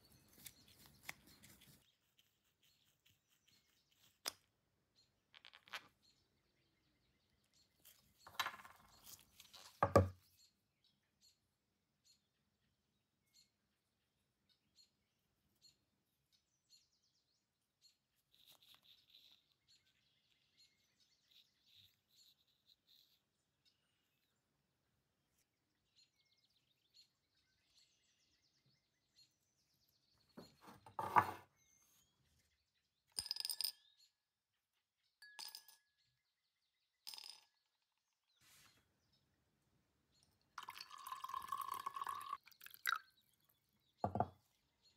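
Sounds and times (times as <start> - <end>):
soft scratching: 38.4 - 38.9
metal pieces knocking on hard surface: 44.1 - 44.3.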